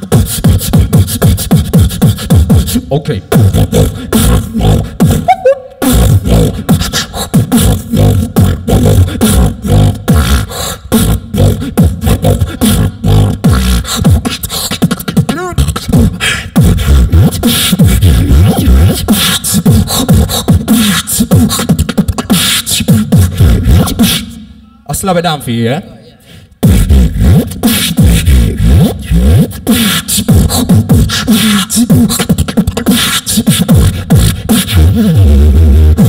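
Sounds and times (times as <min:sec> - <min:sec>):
beatboxing into a microphone: 0:00.0 - 0:36.0
wavering pitched sound: 0:05.1 - 0:06.0.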